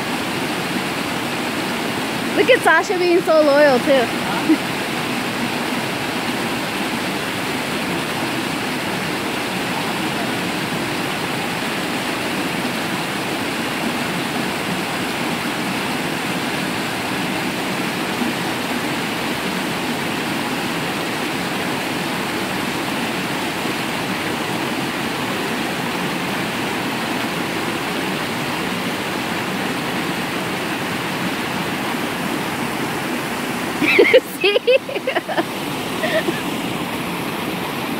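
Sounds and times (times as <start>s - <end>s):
water rushing over rocks: 0.0s - 37.9s.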